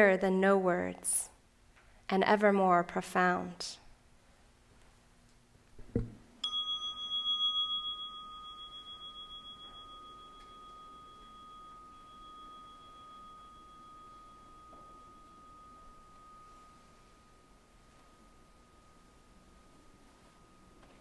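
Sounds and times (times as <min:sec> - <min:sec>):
soft knock: 0:05.8 - 0:06.2
meditation bell chime: 0:06.4 - 0:21.0.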